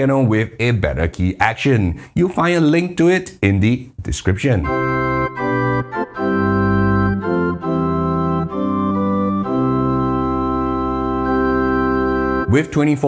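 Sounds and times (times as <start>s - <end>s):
pipe organ chords: 4.6s - 13.0s.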